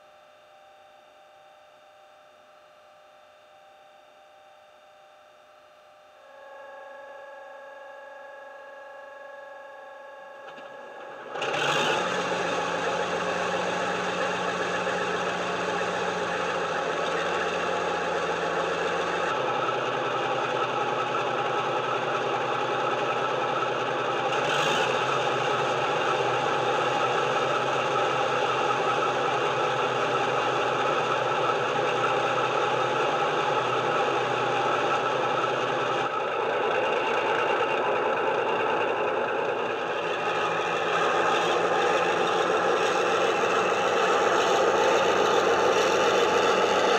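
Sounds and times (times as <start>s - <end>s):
faint steady hum: 0.0s - 11.4s
diesel engine running: 10.4s - 46.9s.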